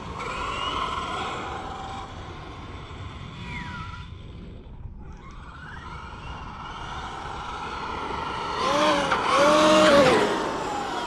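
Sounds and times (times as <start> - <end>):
electric motor whine: 5.4 - 11.0.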